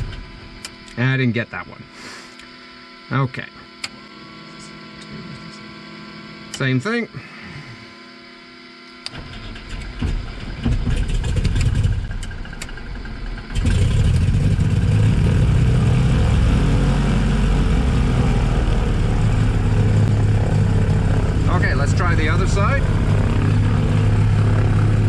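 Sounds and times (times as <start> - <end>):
aircraft engine running: 3.7 - 25.0
starter cranking propeller: 9.1 - 12.9.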